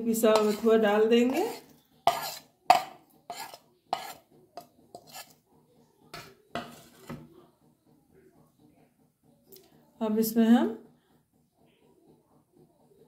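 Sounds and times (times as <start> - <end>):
metal spoon scraping a plate: 0.0 - 5.4, 6.2 - 7.3.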